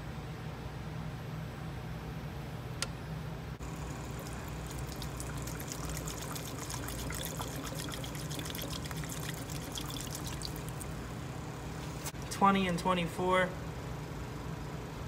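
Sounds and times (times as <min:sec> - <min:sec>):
liquid trickling into a plastic cup: 0:03.6 - 0:11.0.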